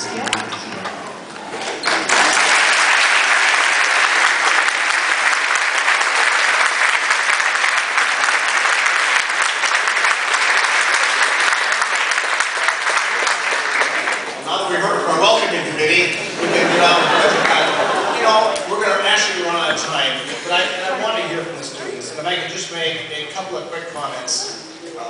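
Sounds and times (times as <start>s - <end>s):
large audience applauding: 1.7s - 14.7s, 16.6s - 19.4s.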